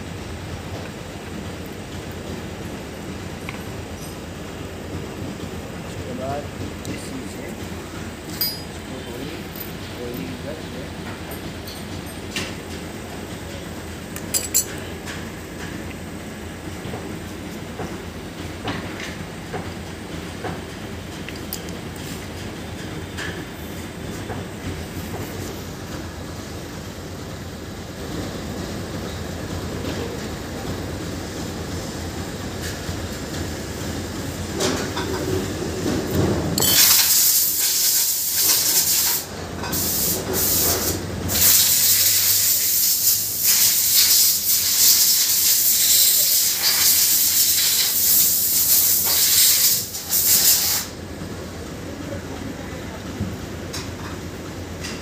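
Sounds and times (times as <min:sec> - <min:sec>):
loud hiss: 0:36.6 - 0:51.0.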